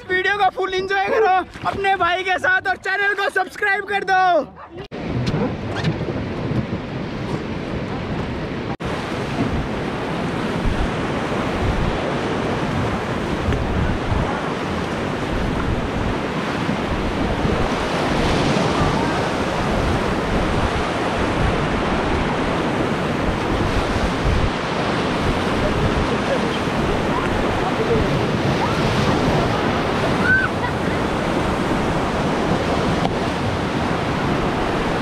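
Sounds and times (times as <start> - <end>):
wind buffeting microphone: 4.7 - 35.0
river rapids rushing: 8.9 - 35.0.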